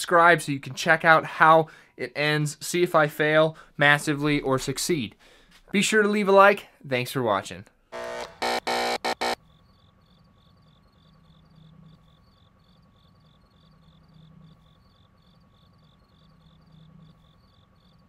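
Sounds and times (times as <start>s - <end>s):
crickets chirping: 9.4s - 18.0s.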